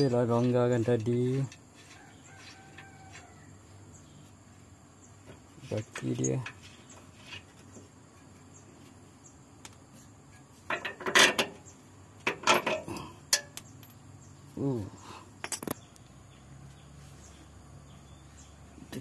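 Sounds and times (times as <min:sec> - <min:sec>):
metal tools clinking on bolts: 0:05.6 - 0:06.7, 0:10.7 - 0:11.6, 0:12.2 - 0:14.2, 0:15.4 - 0:15.8.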